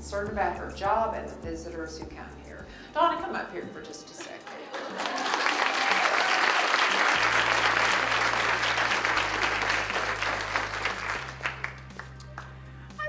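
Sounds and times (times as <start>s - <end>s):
audience applauding: 4.4s - 12.6s.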